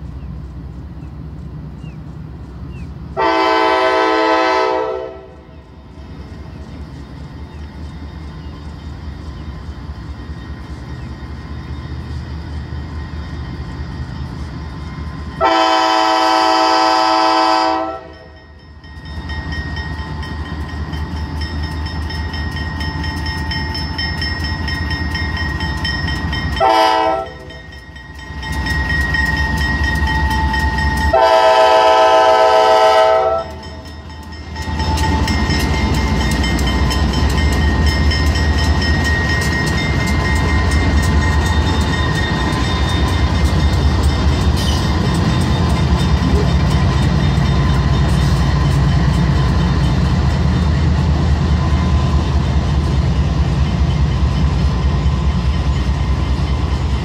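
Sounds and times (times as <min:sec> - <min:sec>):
locomotive air horn blasts: 0:03.2 - 0:05.5, 0:15.4 - 0:18.4, 0:26.6 - 0:27.6, 0:31.0 - 0:33.6.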